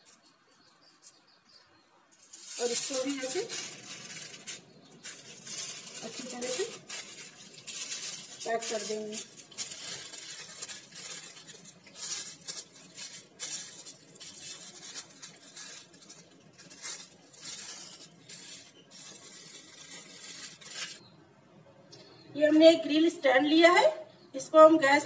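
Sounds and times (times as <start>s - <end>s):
aluminium foil crinkling: 0.0s - 1.3s, 2.1s - 21.0s.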